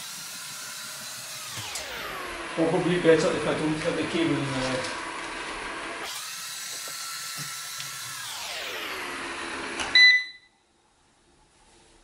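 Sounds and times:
robot vacuum motor whine: 0.0s - 10.2s
short high beep: 10.0s - 10.6s.

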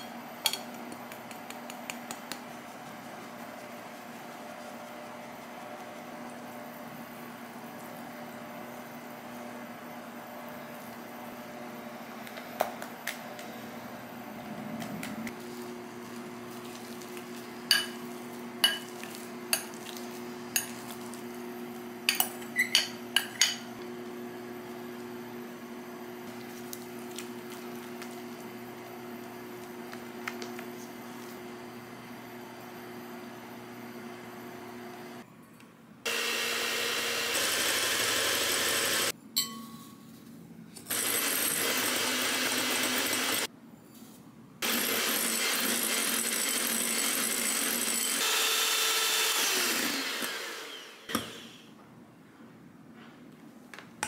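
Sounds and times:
whisk stirring batter in bowl: 0.6s - 6.5s
whisk clinking against glass: 17.7s - 18.0s, 18.6s - 18.9s, 39.4s - 40.0s
electric hand mixer whirring: 36.1s - 39.1s, 40.9s - 43.5s, 44.6s - 51.6s.

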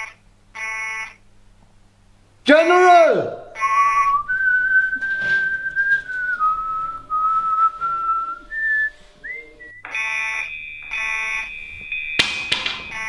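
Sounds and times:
pulsing electronic warning alarm: 0.0s - 1.2s, 3.6s - 13.0s
person whistling a tune: 3.6s - 9.9s.

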